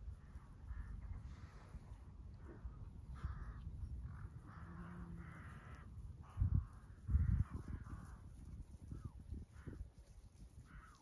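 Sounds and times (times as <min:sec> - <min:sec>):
wind rumbling on microphone: 0:00.0 - 0:11.0
crows cawing: 0:00.1 - 0:01.1, 0:02.6 - 0:08.3, 0:09.5 - 0:09.8, 0:10.6 - 0:11.0.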